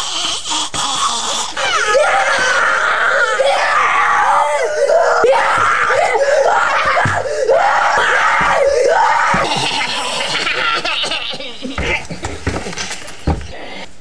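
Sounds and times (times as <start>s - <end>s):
boy screaming: 1.6s - 10.6s.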